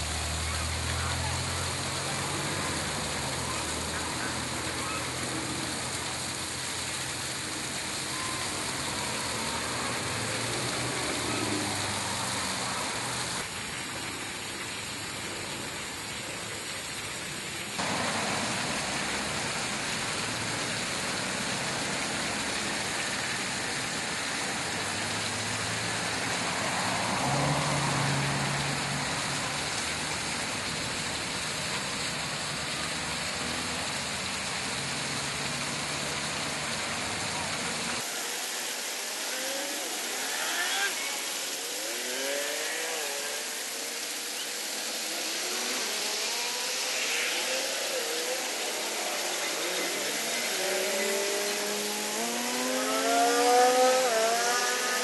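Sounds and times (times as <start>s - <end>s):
road traffic hiss: 0.0s - 55.0s
passing vehicle engine rumble: 17.8s - 38.0s, 44.8s - 55.0s.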